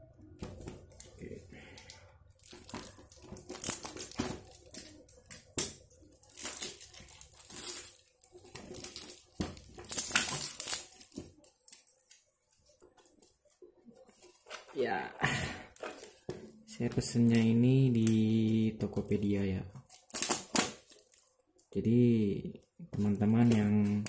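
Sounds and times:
paper packaging ripping and rustling: 2.4 - 13.4, 19.8 - 21.3.

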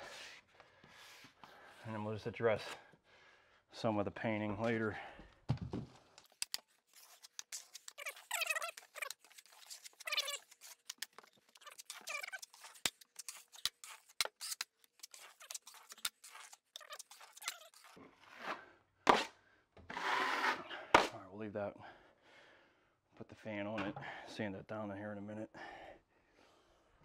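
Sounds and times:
drywall knife scraping: 6.3 - 21.2.

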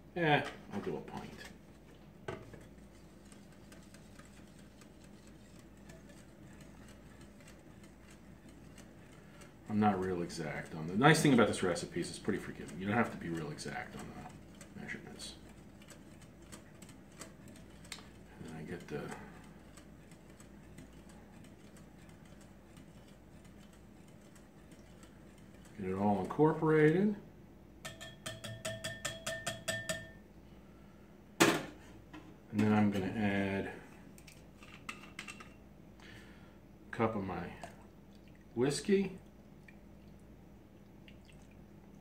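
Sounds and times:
wire whisk ticking against glass bowl: 2.9 - 25.8, 27.8 - 30.2.

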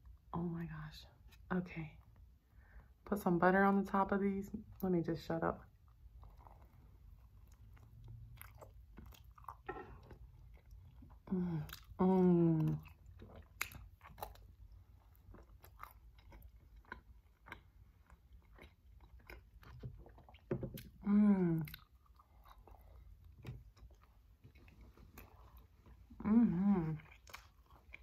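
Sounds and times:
biting and chewing: 5.7 - 12.0, 12.6 - 21.0, 26.8 - 28.0.

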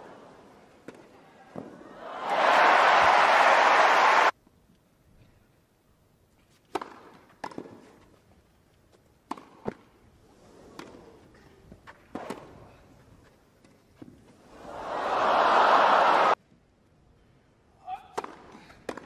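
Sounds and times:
tennis ball struck by rackets: 6.7 - 7.8, 9.3 - 9.8.

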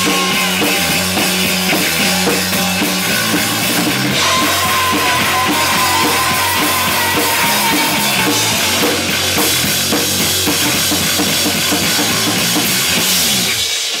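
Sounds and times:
live rock band playing: 0.0 - 14.0.

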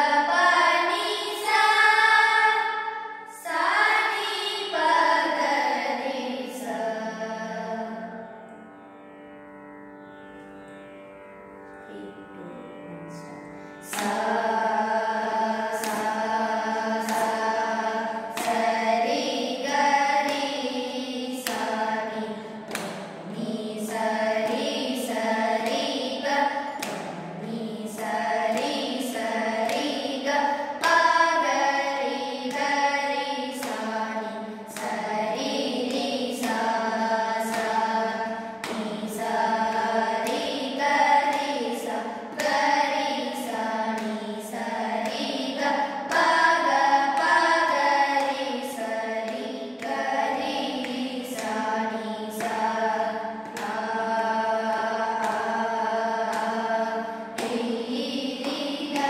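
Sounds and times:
group singing: 0.0 - 8.2, 13.8 - 59.0
hand claps: 13.9 - 14.5, 15.6 - 59.0.

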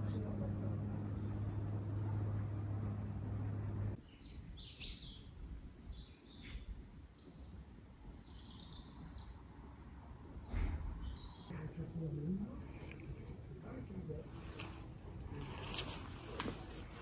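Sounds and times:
low hum: 0.0 - 4.0
small birds chirping: 0.0 - 16.4
thump: 10.5 - 11.0.

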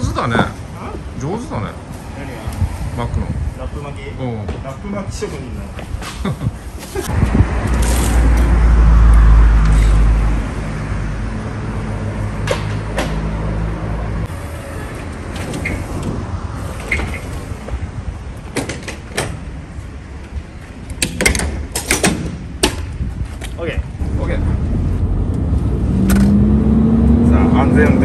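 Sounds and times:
large truck engine drone: 7.1 - 18.4, 24.0 - 28.0.

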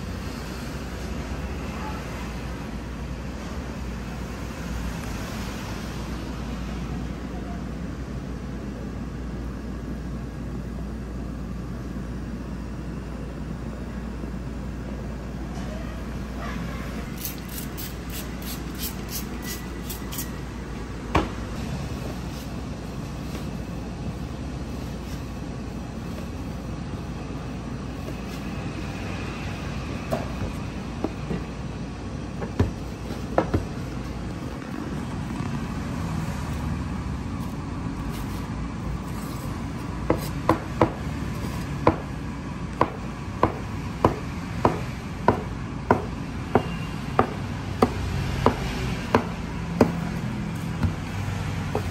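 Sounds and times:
cleaver chopping dough on board: 42.8 - 50.0.

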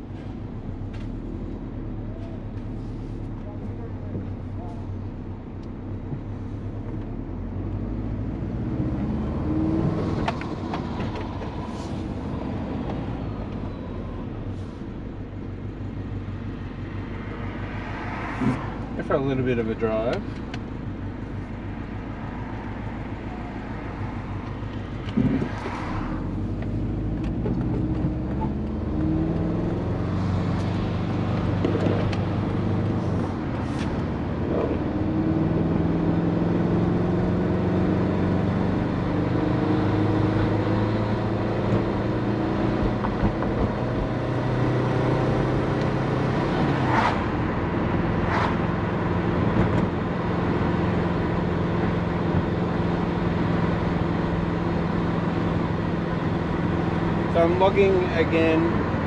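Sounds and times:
turbocharged car engine revving: 23.6 - 59.0.

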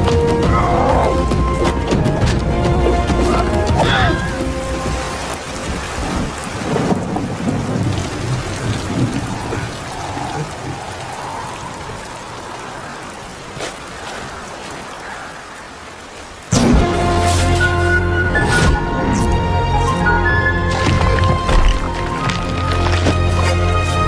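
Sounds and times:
thunder rumbling: 0.0 - 13.6
heavy rain: 0.0 - 24.0.

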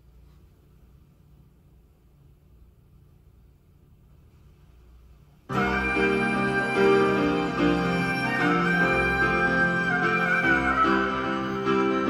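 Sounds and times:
instrumental music from cassette: 5.5 - 12.0.

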